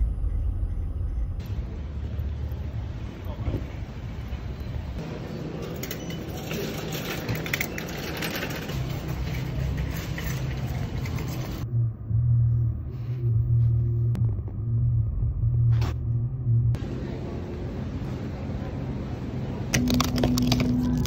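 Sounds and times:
car engine drone inside cabin: 11.6s - 21.0s.

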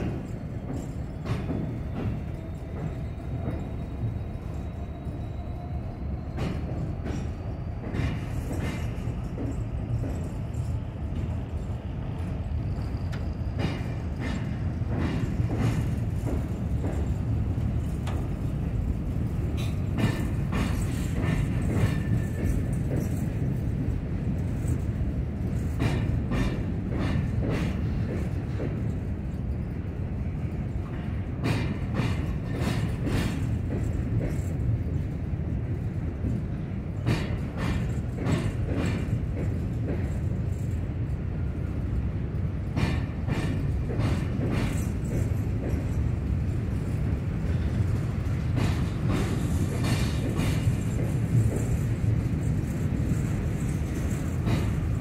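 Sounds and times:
freight train rumbling: 0.0s - 55.0s
wheels clicking over rail joints: 12.2s - 55.0s.

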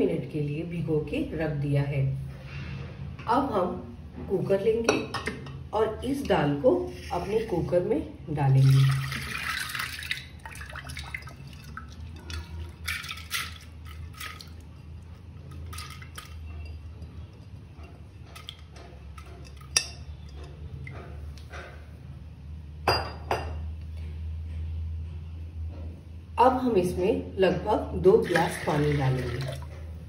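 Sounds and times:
metal spoon scraping glass bowl: 15.5s - 18.6s.

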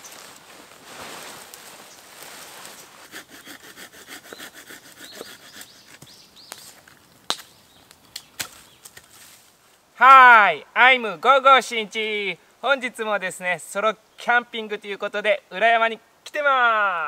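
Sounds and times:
sharp wood cracks: 1.2s - 9.8s
hand saw cutting wood: 3.0s - 6.1s.

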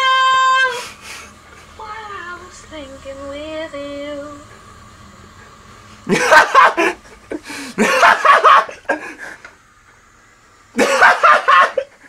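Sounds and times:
man laughing wheezily: 6.1s - 9.4s, 10.8s - 12.0s.

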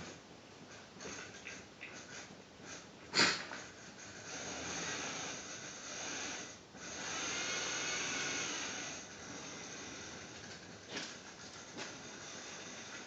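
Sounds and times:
model train motor whirring: 3.8s - 13.0s.

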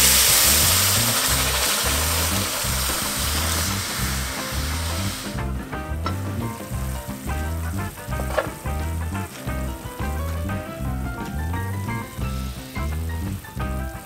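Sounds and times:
liquid hissing in hot pot: 0.0s - 5.4s
music with bass beat: 0.0s - 14.0s.

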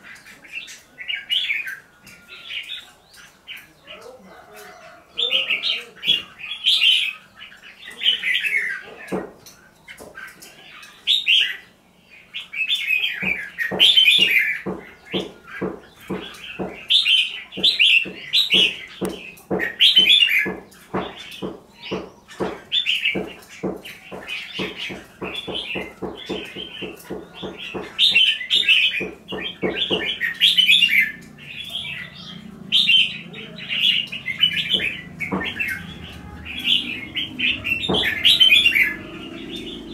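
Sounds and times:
birds singing warbled phrases: 0.0s - 39.9s
sharp taps: 33.8s - 39.6s.

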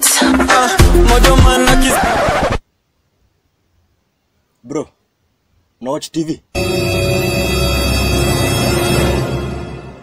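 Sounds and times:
held musical chord: 6.6s - 10.0s.

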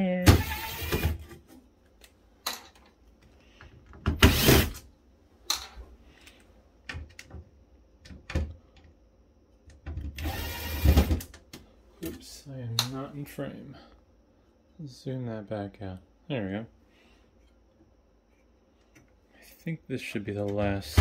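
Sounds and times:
electric screwdriver spinning: 10.2s - 11.1s.

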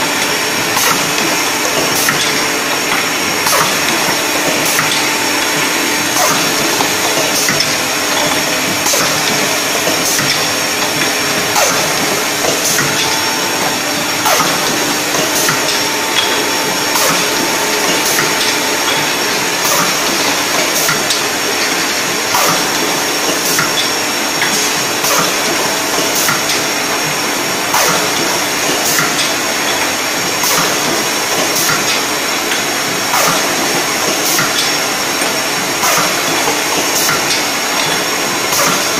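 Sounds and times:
filling machine hiss and hum: 0.0s - 38.9s
short machine clicks: 27.7s - 38.9s.

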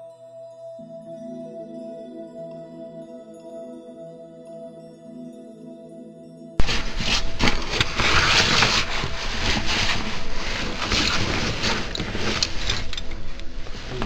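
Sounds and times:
suit scraping against rock: 6.6s - 14.0s.

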